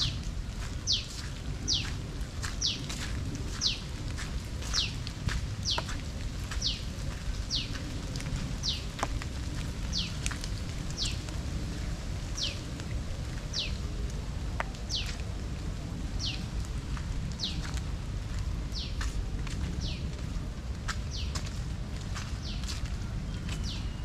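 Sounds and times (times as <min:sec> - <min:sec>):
rain hiss: 0:00.0 - 0:23.2
water drips ticking: 0:04.1 - 0:11.5.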